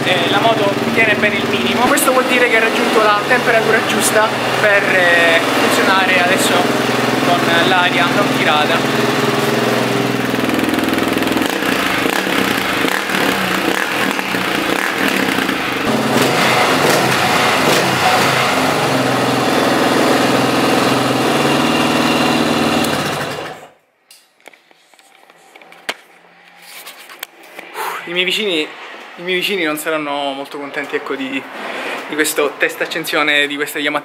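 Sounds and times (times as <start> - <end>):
single-cylinder motorcycle engine running: 0.0 - 23.8.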